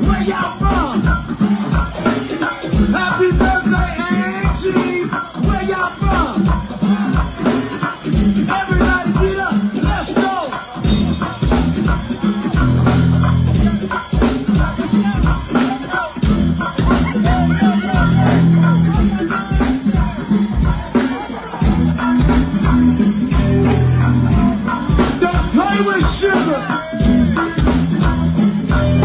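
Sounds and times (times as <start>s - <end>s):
drum and percussion groove: 0.0s - 29.0s
live band music: 0.0s - 29.0s
voices over music: 0.0s - 29.0s
heavy bass: 10.8s - 29.0s.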